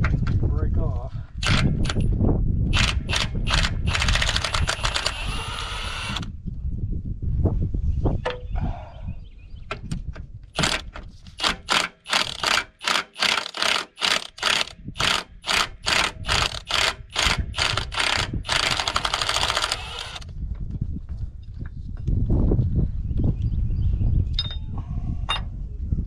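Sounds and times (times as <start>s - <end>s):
hand tool clicking strokes: 10.6s - 20.2s.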